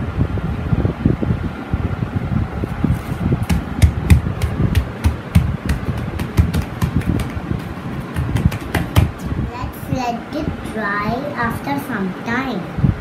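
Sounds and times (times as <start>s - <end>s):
hands patting foam sheet: 3.0s - 9.2s.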